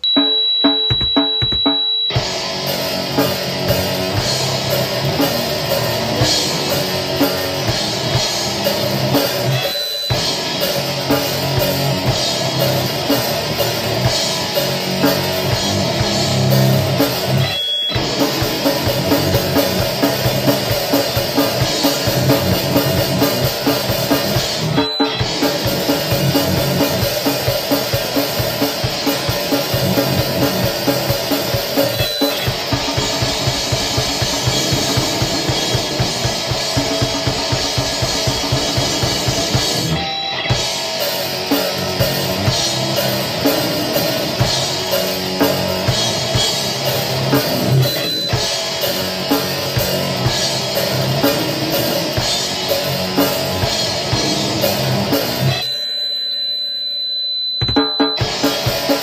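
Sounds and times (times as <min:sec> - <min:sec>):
fast pounding drums: 0:00.0 - 0:55.6, 0:57.6 - 0:59.0
bass guitar: 0:00.0 - 0:55.7, 0:58.1 - 0:59.0
distorted guitars: 0:00.0 - 0:59.0.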